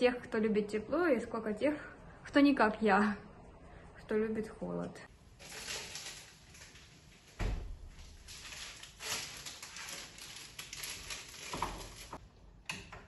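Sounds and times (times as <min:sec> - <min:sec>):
rustling: 0:05.4 - 0:12.2
refrigerator door thumping shut: 0:07.4 - 0:07.8.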